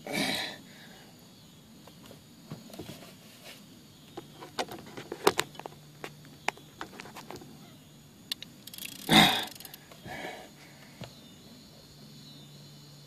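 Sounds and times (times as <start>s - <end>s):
fishing reel clicks and knocks: 8.3s - 10.0s.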